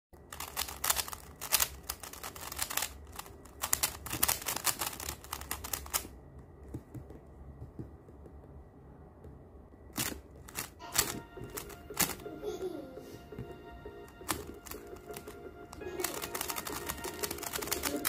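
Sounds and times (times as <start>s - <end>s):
plastic puzzle cube clicking: 0.3s - 6.1s, 10.0s - 12.2s, 14.2s - 18.0s.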